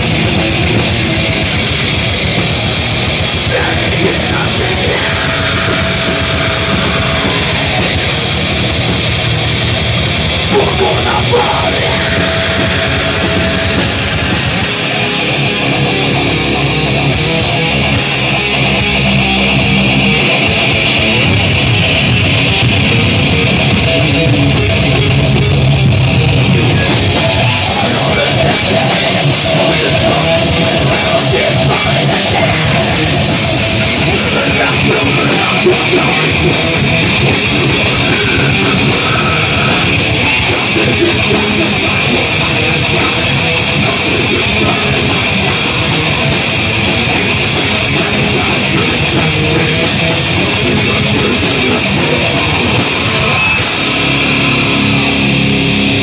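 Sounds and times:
heavy metal band playing live: 0:00.0 - 0:56.0.

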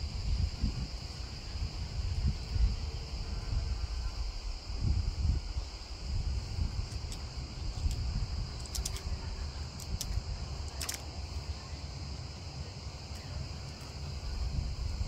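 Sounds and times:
high insect drone: 0:00.0 - 0:15.0
wind rumbling on microphone: 0:00.0 - 0:15.0
faint clicks: 0:08.6 - 0:09.2.

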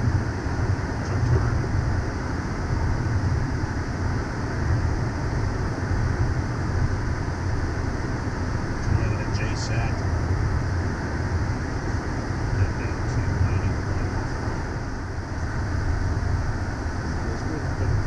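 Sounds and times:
airflow and engine hiss: 0:00.0 - 0:18.0
jet cockpit low rumble: 0:00.0 - 0:18.0.

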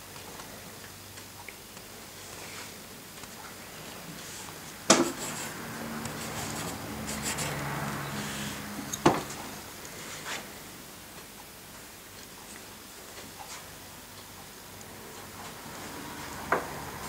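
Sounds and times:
pencil scratching on paper: 0:05.0 - 0:08.6.

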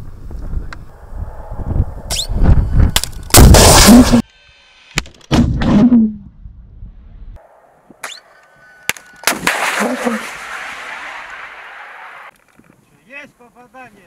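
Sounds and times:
missile launch blasts with hiss: 0:03.3 - 0:04.2, 0:09.4 - 0:12.3.

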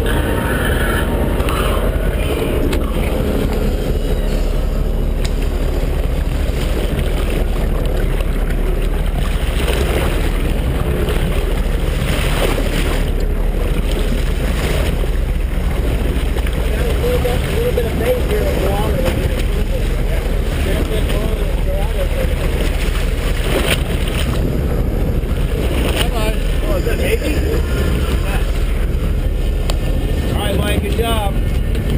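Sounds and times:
boat engine rumble: 0:00.0 - 0:31.9
water splashing against hull: 0:00.0 - 0:31.9
wind on microphone: 0:00.0 - 0:31.9.

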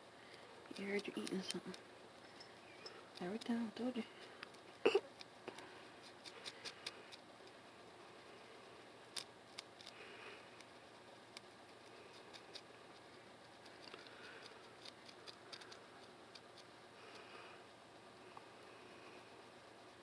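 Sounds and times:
comb scratching scalp: 0:00.7 - 0:01.8, 0:04.6 - 0:07.6, 0:09.1 - 0:17.2.

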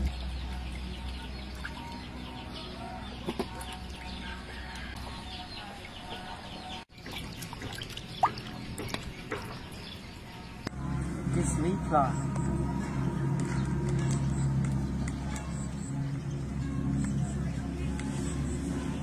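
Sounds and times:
water sloshing and splashing: 0:00.0 - 0:10.6
birds chirping: 0:00.0 - 0:19.0.

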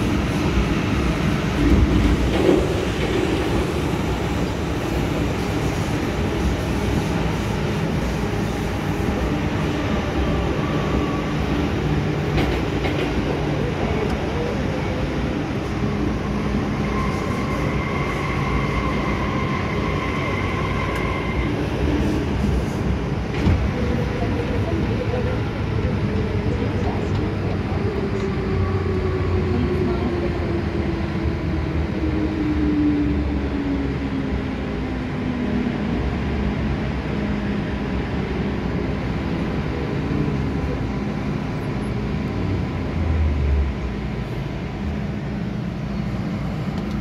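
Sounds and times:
train wheels rumbling: 0:00.0 - 0:33.9.

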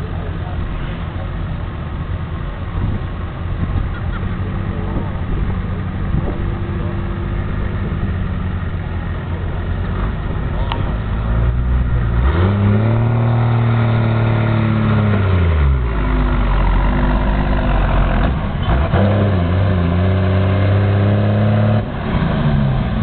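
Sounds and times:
diesel engine running hard: 0:00.0 - 0:23.0.

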